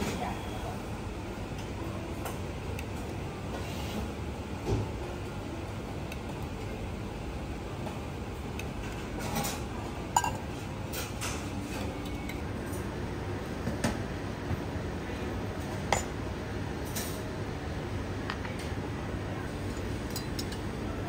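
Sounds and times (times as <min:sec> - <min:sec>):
steady background hum: 0:00.0 - 0:21.0
metal utensils clinking: 0:19.6 - 0:20.7.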